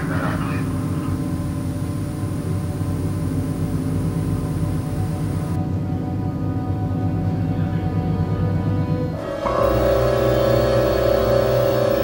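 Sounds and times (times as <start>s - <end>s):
faint high whine: 0.0s - 5.6s, 9.4s - 12.0s
low droning ambient hum: 0.0s - 6.0s.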